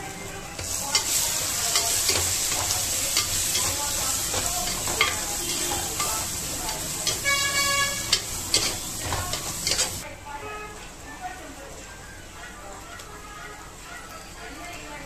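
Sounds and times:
masala sizzling in oil: 0.0s - 10.1s
metal spatula scraping pot: 0.6s - 10.0s.

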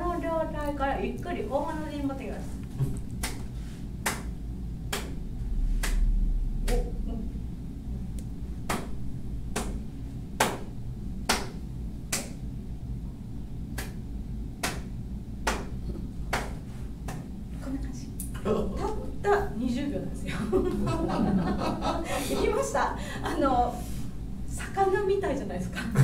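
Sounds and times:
hand claps: 3.1s - 5.2s, 5.8s - 6.9s, 8.7s - 9.8s, 10.4s - 12.4s, 13.8s - 14.0s, 14.6s - 17.3s.

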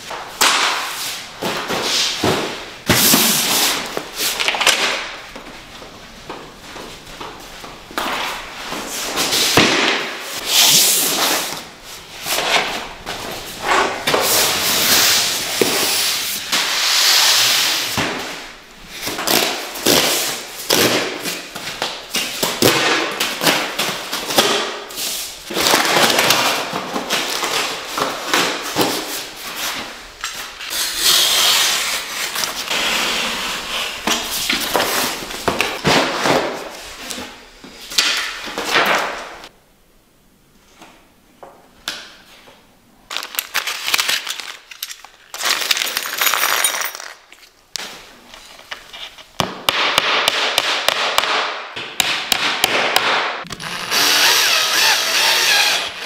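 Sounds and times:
boxes scraping on tiled floor: 0.9s - 4.6s, 10.3s - 21.4s, 30.6s - 37.9s.

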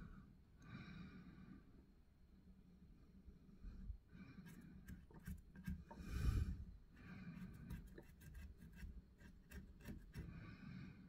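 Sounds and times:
pencil scratching: 4.4s - 6.0s, 7.0s - 10.4s.

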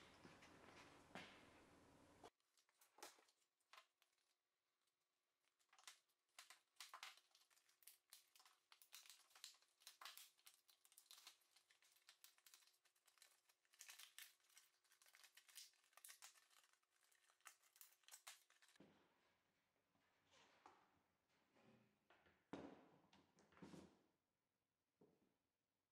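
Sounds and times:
plastic blister pack crackling: 5.7s - 18.8s.

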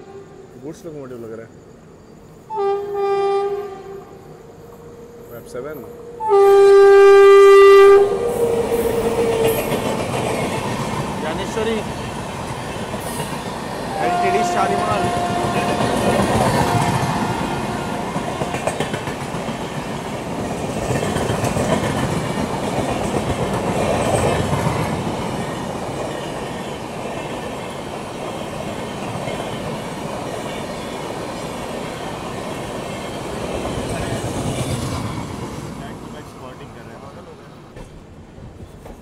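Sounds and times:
train rumbling on track: 0.0s - 39.0s
wheels clicking over rail joints: 14.4s - 30.3s.

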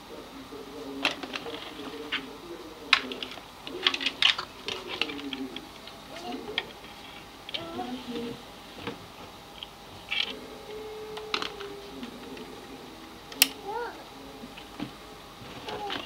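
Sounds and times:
plastic plugs clicking and rattling: 2.9s - 6.0s.

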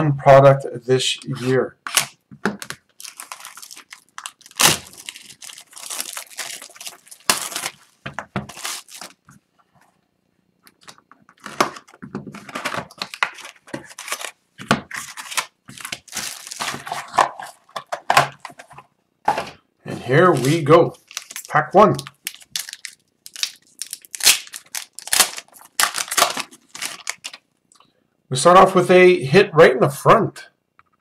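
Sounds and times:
plastic wrap crinkling and tearing: 1.3s - 9.3s, 10.7s - 18.7s, 20.1s - 27.4s
cardboard and card packs rustling: 1.3s - 9.4s, 10.7s - 19.6s, 20.2s - 27.4s.

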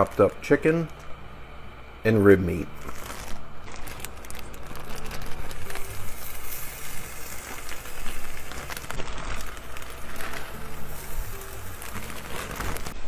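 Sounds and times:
plastic bag rustling: 2.5s - 13.0s
meat sizzling in a skillet: 5.7s - 13.0s.

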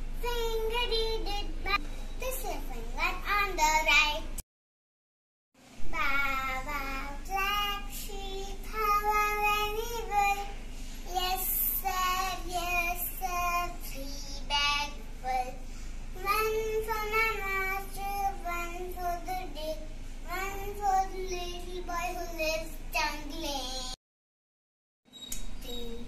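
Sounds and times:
child singing: 0.2s - 4.4s, 5.9s - 15.6s, 16.2s - 24.0s.

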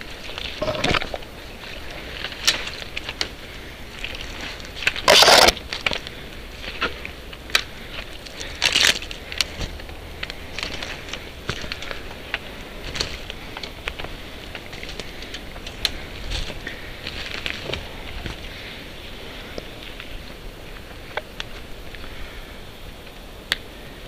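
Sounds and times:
footsteps through dry forest debris: 0.0s - 22.3s
twigs snapping: 2.0s - 18.6s.

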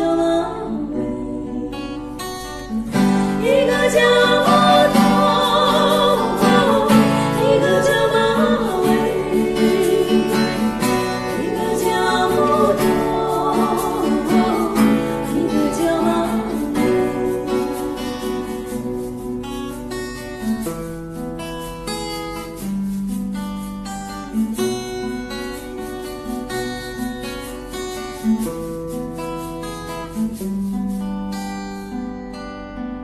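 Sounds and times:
women singing together: 0.0s - 2.2s, 3.0s - 19.7s
strummed acoustic guitar: 0.0s - 33.0s
hand shaker: 2.2s - 32.4s.

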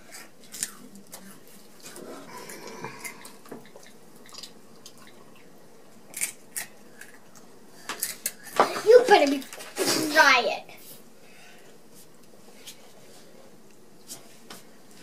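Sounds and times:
potato chips being chewed: 0.0s - 8.6s.

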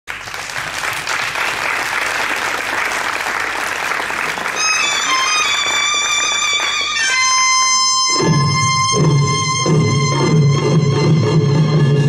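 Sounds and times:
audience applauding: 0.1s - 7.7s
string melody: 4.6s - 12.0s.

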